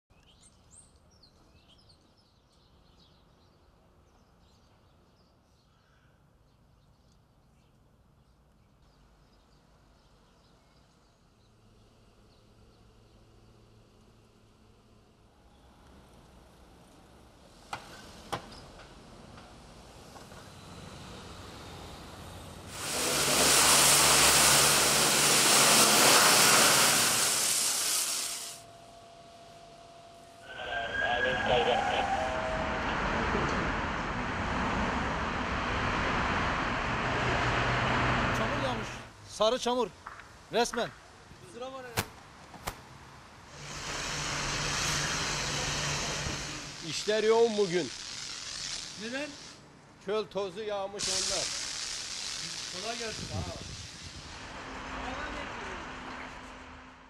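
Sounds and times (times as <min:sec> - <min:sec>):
faint birds chirping: 0:00.1 - 0:14.4
pressure washer spraying water: 0:22.6 - 0:28.7, 0:43.5 - 0:49.6, 0:51.0 - 0:55.4
low outdoor rumble: 0:28.6 - 0:39.2.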